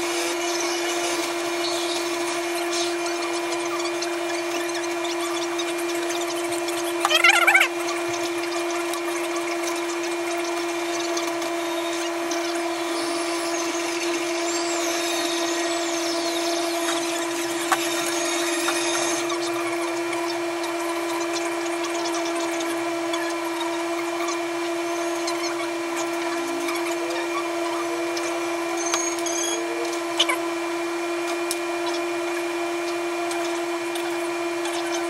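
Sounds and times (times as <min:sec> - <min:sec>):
small electric motor humming: 0:00.0 - 0:35.0
wires scratching and rustling: 0:00.9 - 0:13.4.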